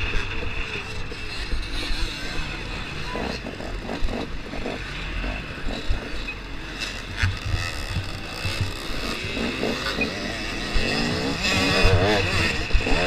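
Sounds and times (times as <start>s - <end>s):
dirt bike engine revving: 0.0s - 13.0s
short thumps: 7.1s - 10.0s.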